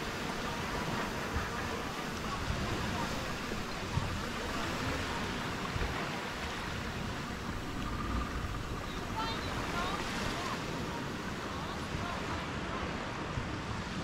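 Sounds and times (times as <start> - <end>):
small waves lapping on beach: 0.0 - 14.0
low rumble: 6.8 - 9.8.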